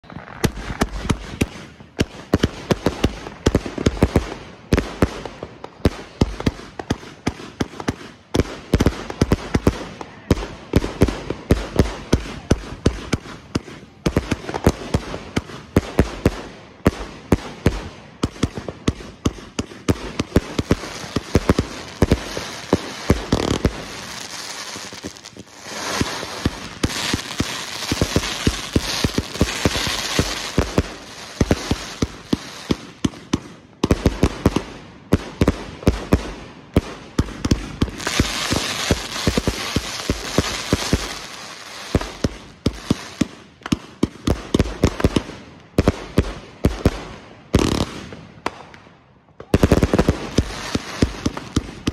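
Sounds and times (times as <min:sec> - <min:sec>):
firework cake launches and bursts: 0:11.0 - 0:33.4, 0:34.0 - 0:43.6.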